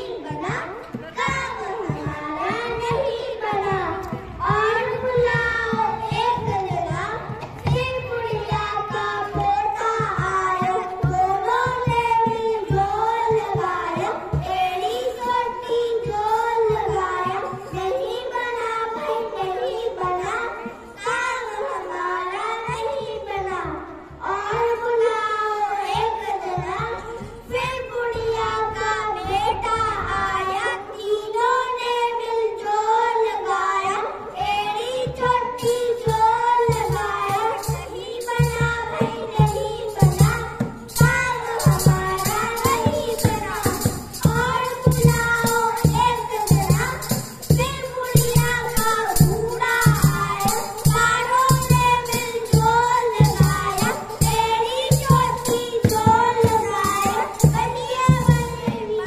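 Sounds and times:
high child-like singing voice: 0.0 - 59.0
steady beat: 25.9 - 31.3.

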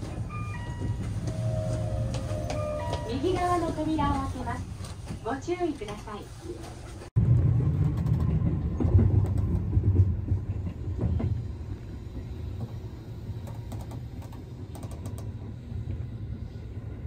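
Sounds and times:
electric train rumble: 0.0 - 6.2, 7.2 - 17.0.

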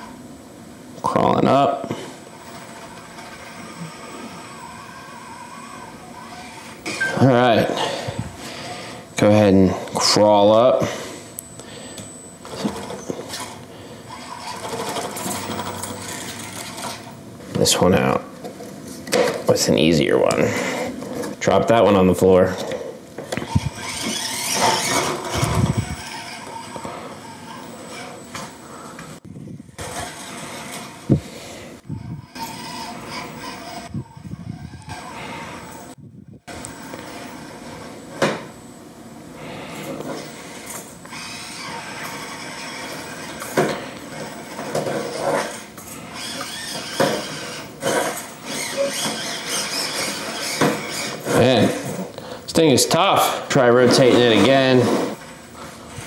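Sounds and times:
small electric motor whining: 2.3 - 9.0, 11.1 - 17.2, 23.2 - 38.0, 39.4 - 52.1
tires scraping on wood: 12.5 - 17.9, 19.8 - 29.2, 29.8 - 38.6, 39.4 - 56.0
toy truck clattering on wooden ramp: 14.2 - 17.1.

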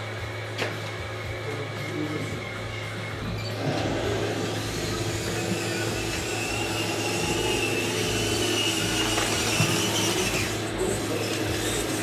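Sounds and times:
thin high whine: 0.0 - 12.0
small electric motors whirring: 2.4 - 12.0.

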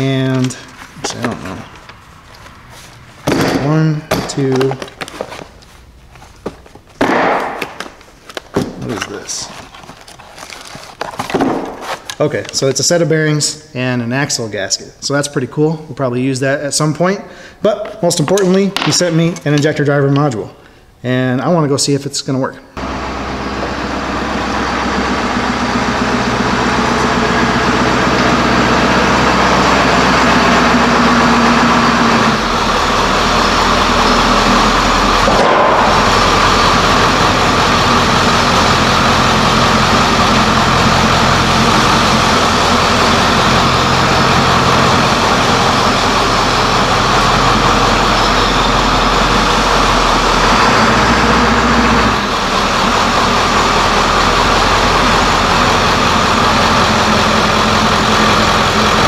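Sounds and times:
diesel engine running: 0.0 - 6.8, 22.8 - 59.0.

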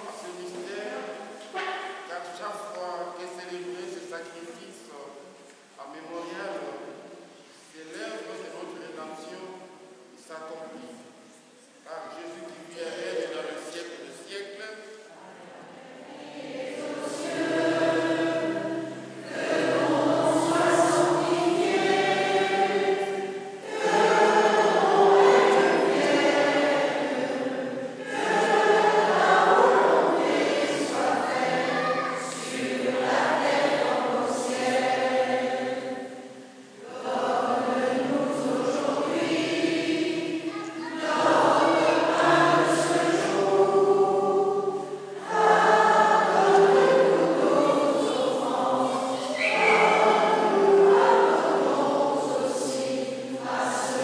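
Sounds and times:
choir singing a hymn: 0.0 - 11.2, 11.8 - 54.0.

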